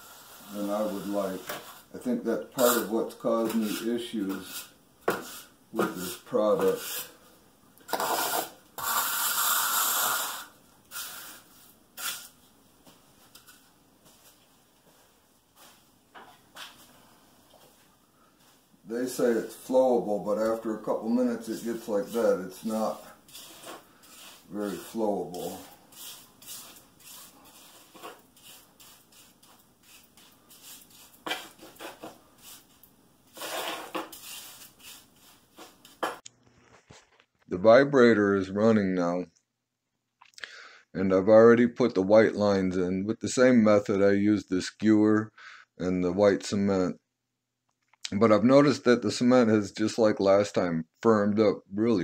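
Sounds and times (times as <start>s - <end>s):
trowel scraping concrete: 0.0s - 7.2s, 7.9s - 12.3s, 20.3s - 32.7s, 33.3s - 36.2s.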